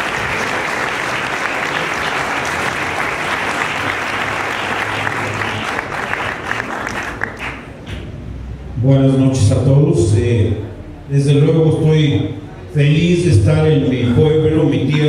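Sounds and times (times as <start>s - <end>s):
crowd applauding: 0.0s - 8.1s.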